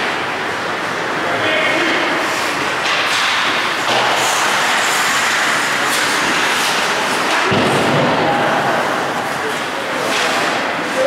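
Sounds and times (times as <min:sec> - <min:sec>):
skate blades scraping ice: 0:03.9 - 0:07.5.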